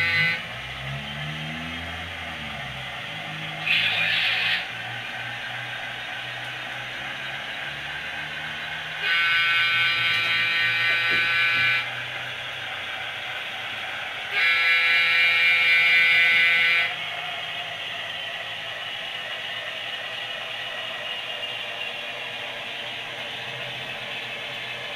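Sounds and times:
model locomotive horn blasts: 0:00.0 - 0:00.6, 0:03.6 - 0:04.8, 0:08.9 - 0:12.2, 0:14.3 - 0:17.1.

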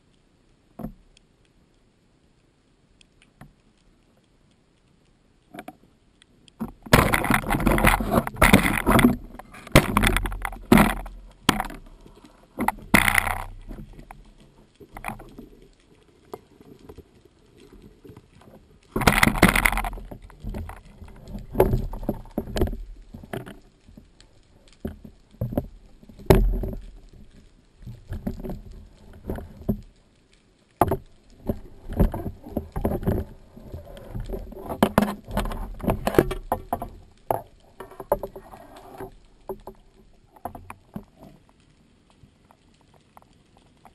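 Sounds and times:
underwater knocks and clicks: 0:00.7 - 0:01.3, 0:03.0 - 0:04.6, 0:05.4 - 0:43.9
water rushing underwater: 0:06.7 - 0:29.9, 0:31.0 - 0:41.4.

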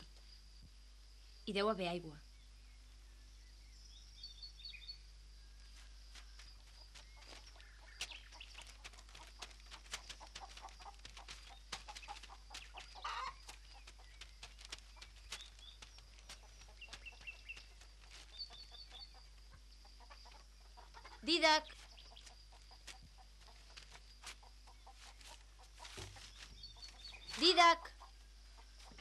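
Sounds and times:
footsteps running on dry dirt: 0:05.5 - 0:27.8
hens clucking: 0:06.2 - 0:29.0
hen squawk: 0:10.4 - 0:13.6.

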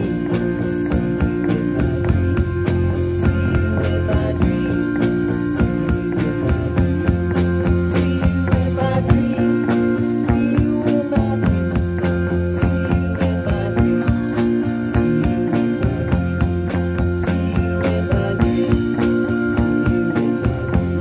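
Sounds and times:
drum kit beat: 0:00.0 - 0:21.0
electric bass: 0:00.0 - 0:21.0
guitar: 0:00.0 - 0:21.0.

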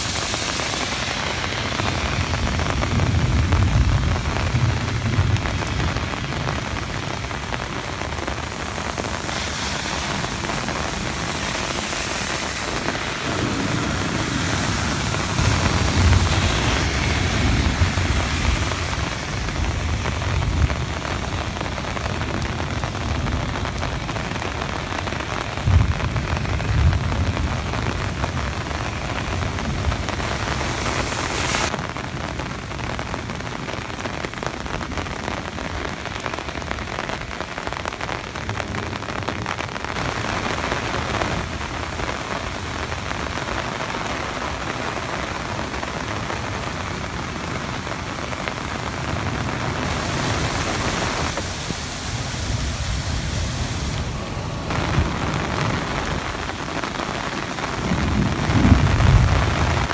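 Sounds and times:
heavy rain on pavement: 0:00.0 - 0:59.9
thunder rumbles: 0:00.0 - 0:59.9.

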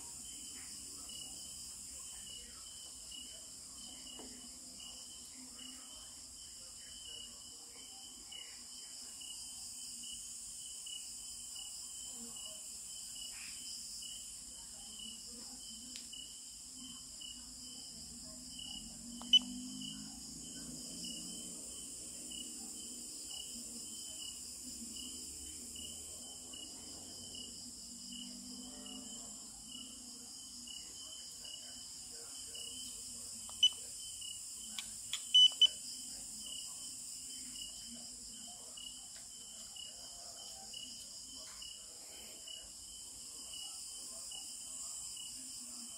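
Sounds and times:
insects chirping: 0:00.0 - 0:45.9.

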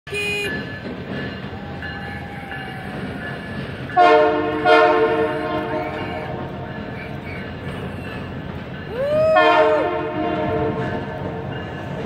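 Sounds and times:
train running across bridge: 0:00.1 - 0:12.0
locomotive horn blasts: 0:04.0 - 0:06.7, 0:09.4 - 0:11.2.

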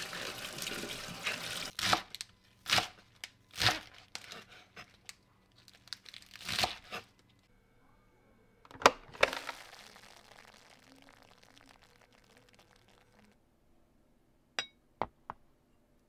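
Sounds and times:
glass bowl clinking: 0:14.6 - 0:14.8.

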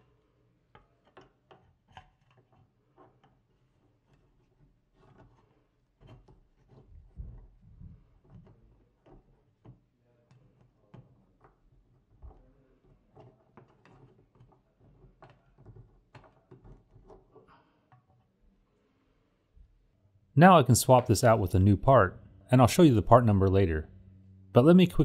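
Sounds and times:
metal tool clicking and scraping plastic: 0:00.0 - 0:18.4.

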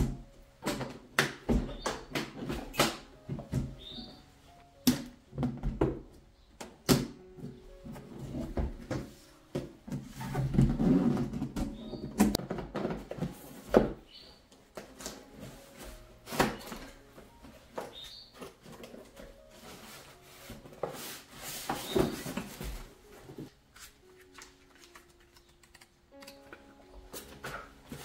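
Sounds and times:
faint background music: 0:00.0 - 0:28.0
cardboard packaging handled: 0:07.8 - 0:28.0.

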